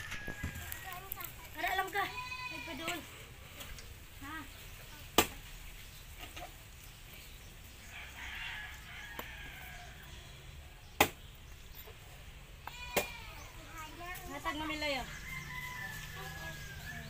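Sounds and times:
rooster crowing: 0:07.9 - 0:10.0, 0:15.0 - 0:17.0.

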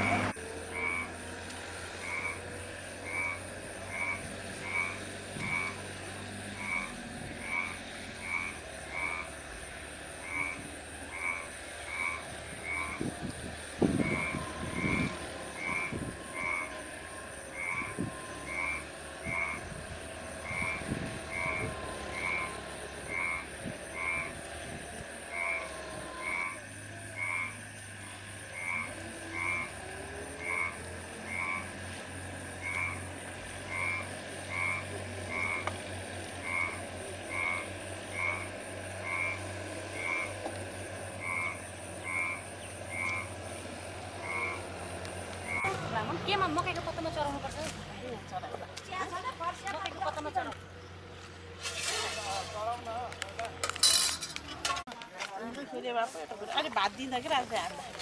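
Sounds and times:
frogs croaking: 0:00.0 - 0:51.5
dull low thumps: 0:12.9 - 0:16.4.

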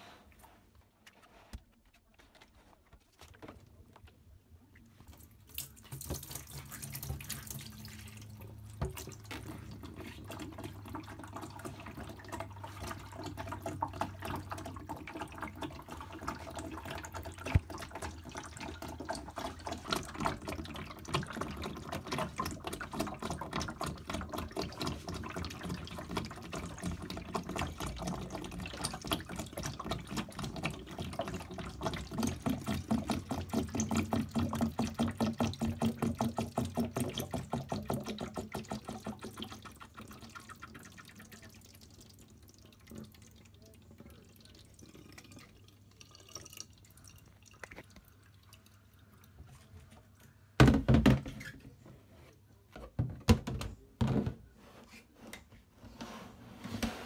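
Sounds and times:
water pouring into steel sink: 0:05.5 - 0:49.6.

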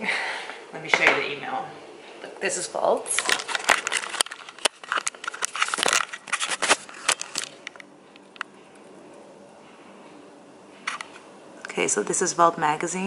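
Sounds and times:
camera handling rustles and clicks: 0:03.2 - 0:08.5.

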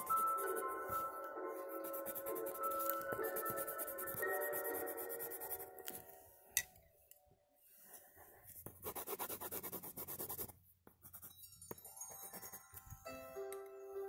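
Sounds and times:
pencil scratching on paper: 0:00.0 - 0:06.1, 0:07.8 - 0:11.3.

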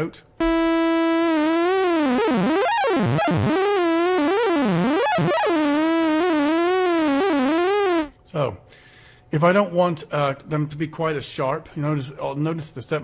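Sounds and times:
buzzy synthesizer note warbling: 0:00.4 - 0:08.1.

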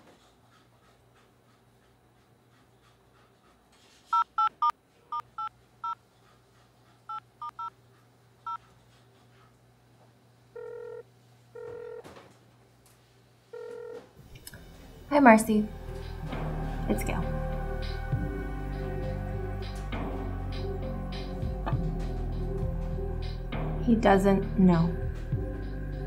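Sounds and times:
phone line ringing tone: 0:10.6 - 0:11.0, 0:11.6 - 0:12.0.

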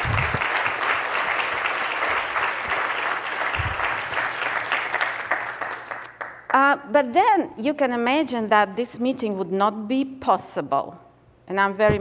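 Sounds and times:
audience applauding: 0:00.0 - 0:06.5
dull low thumps: 0:03.6 - 0:03.9.

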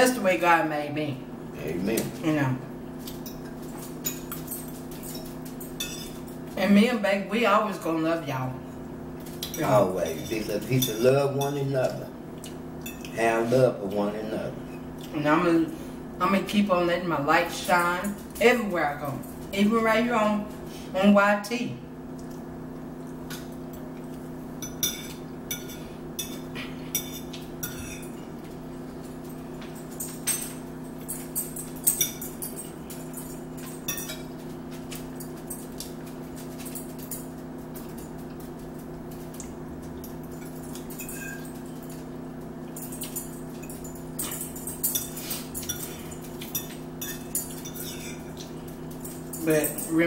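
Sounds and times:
forks clinking on plates: 0:03.0 - 0:06.4, 0:09.2 - 0:13.3, 0:24.6 - 0:50.0.

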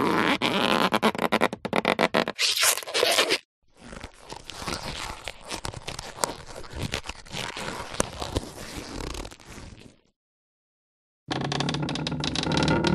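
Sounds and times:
cartoon stretching sound effect: 0:02.4 - 0:03.4.

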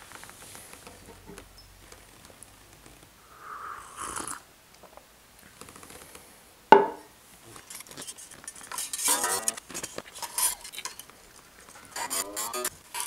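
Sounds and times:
guitar handling scraping rustle: 0:07.4 - 0:13.0.

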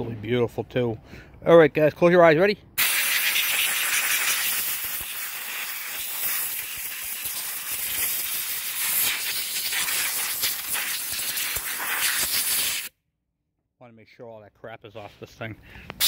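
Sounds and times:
compressed air hissing: 0:02.8 - 0:12.9.

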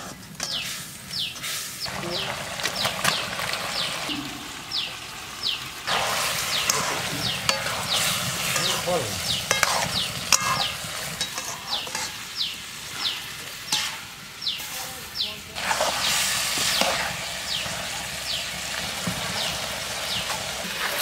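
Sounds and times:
chicken sizzling in hot oil: 0:00.0 - 0:21.0.

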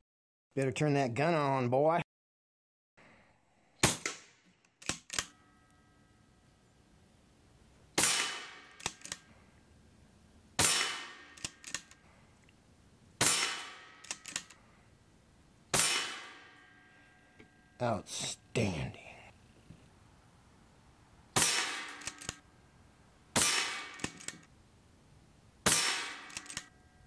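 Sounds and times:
air rifle shots: 0:03.8 - 0:05.3, 0:08.0 - 0:09.3, 0:10.6 - 0:11.9, 0:13.2 - 0:14.6, 0:15.7 - 0:16.6, 0:21.3 - 0:22.4, 0:23.3 - 0:24.4, 0:25.6 - 0:26.7
quick clicks: 0:04.0 - 0:05.3, 0:08.8 - 0:09.3, 0:11.4 - 0:12.0, 0:14.0 - 0:14.6, 0:21.9 - 0:22.4, 0:23.9 - 0:24.5, 0:26.2 - 0:26.7.

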